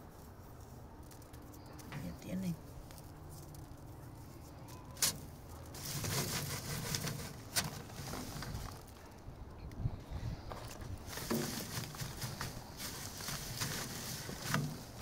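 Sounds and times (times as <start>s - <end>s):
dry plant material rustling: 0.0s - 15.0s.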